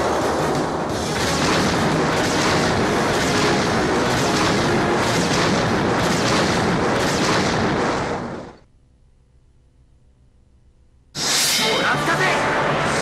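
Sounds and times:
crackling burst: 0.0s - 8.6s
rumbling explosion blast: 1.2s - 8.6s.

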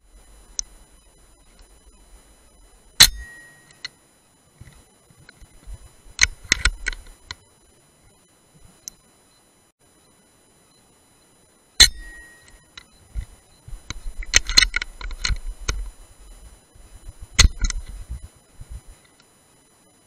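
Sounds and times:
metallic clicks of rifle handling: 13.9s - 15.8s.

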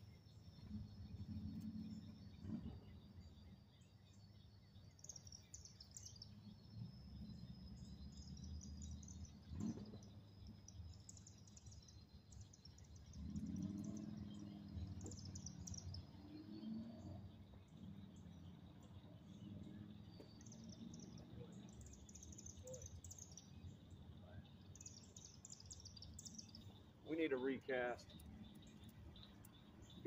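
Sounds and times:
outdoor background noise: 0.0s - 30.0s
small bird chirps: 0.0s - 30.0s.

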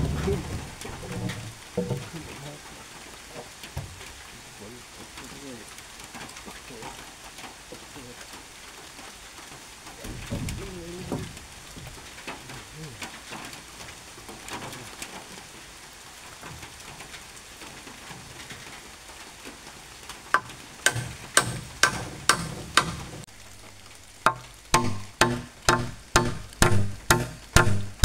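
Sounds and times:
hammer striking nail: 20.4s - 23.1s, 24.3s - 28.0s.

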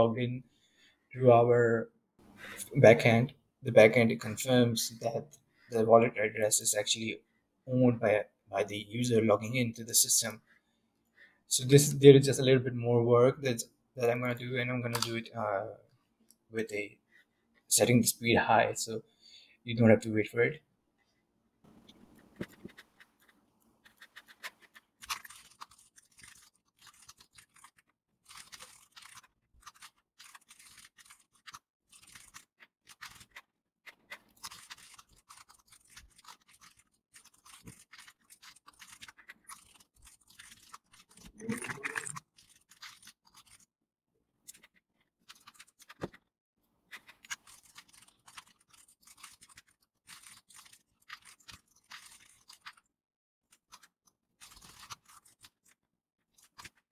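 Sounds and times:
keyboard typing: 21.9s - 33.4s.

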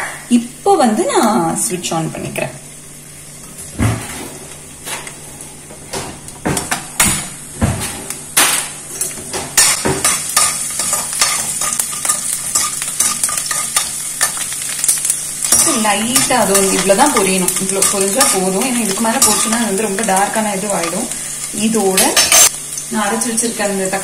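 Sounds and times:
garlic sizzling in hot oil: 8.8s - 24.0s.

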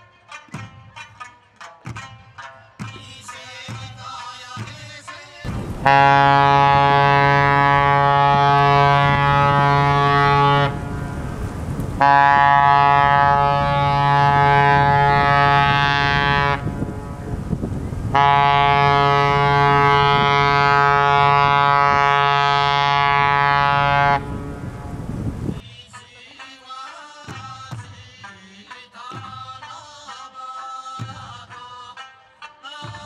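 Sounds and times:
ship horn blasts: 5.5s - 25.6s.

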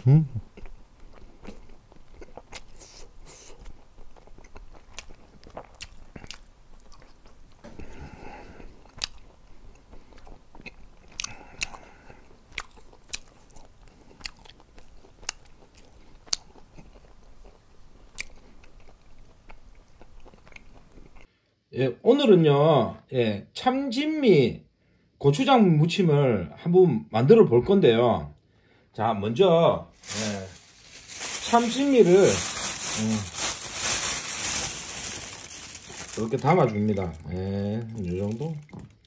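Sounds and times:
person chewing: 0.0s - 21.3s.

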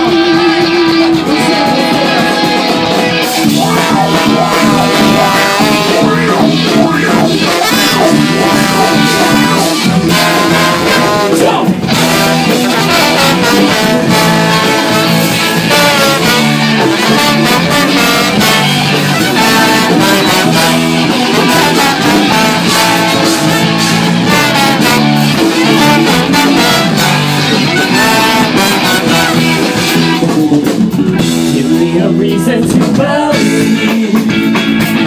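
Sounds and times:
live ska punk band: 0.0s - 35.0s.

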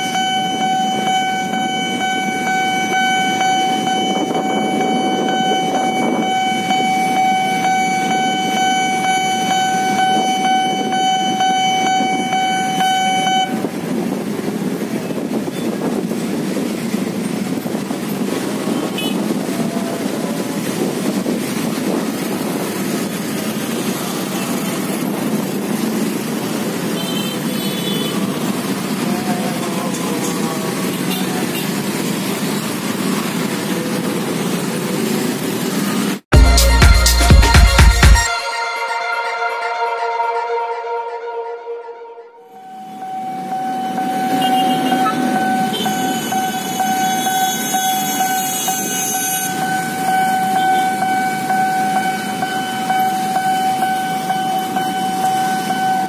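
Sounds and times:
level crossing alarm tone: 0.0s - 13.8s, 36.4s - 56.0s
electric train passing: 0.0s - 36.2s, 38.6s - 56.0s
motorcycle and car engines: 0.0s - 36.3s, 42.9s - 56.0s.

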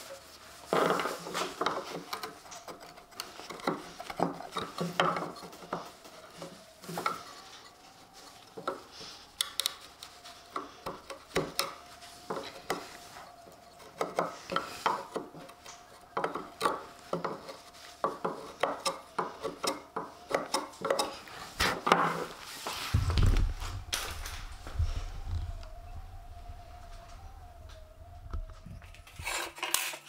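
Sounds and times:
chisel scraping wood: 0.7s - 6.0s, 10.6s - 22.3s.

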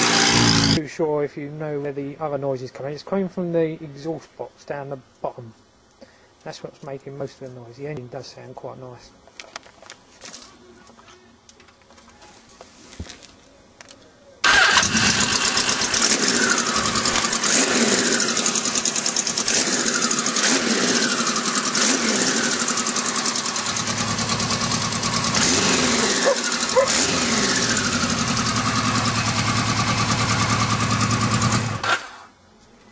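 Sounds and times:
motorcycle engine running: 0.0s - 0.8s, 14.5s - 31.9s.

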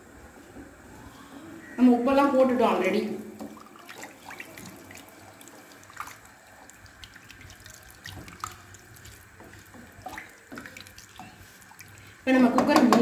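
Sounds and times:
liquid sloshing in a pot: 3.4s - 12.2s.

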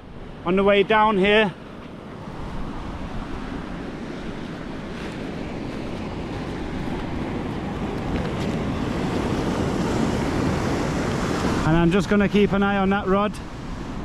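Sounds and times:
sea surf washing on shore: 0.0s - 14.0s
wind buffeting microphone: 0.0s - 14.0s.

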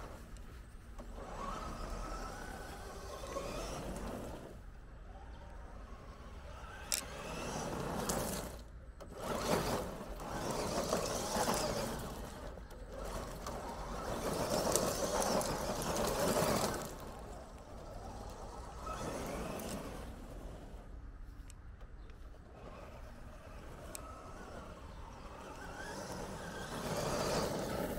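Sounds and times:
electric motor whining: 1.0s - 20.8s, 22.5s - 27.9s
tyres crunching over gravel: 6.9s - 27.9s.

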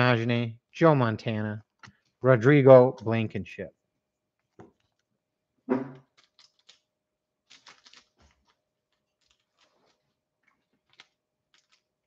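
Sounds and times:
trading cards being handled: 4.4s - 12.0s.

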